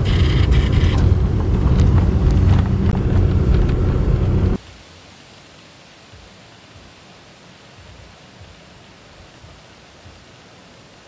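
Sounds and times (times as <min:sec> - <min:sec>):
car engine and road noise: 0:00.0 - 0:04.6
faint steady hiss: 0:04.5 - 0:11.0.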